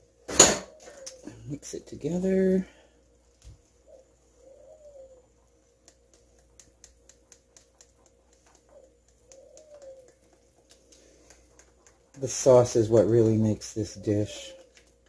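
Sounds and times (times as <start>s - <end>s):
whisk clicking against saucepan: 5.7s - 15.0s.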